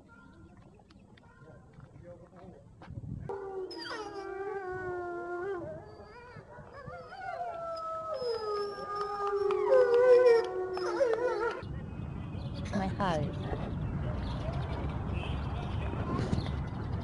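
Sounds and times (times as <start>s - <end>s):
wolves howling: 3.3s - 11.6s.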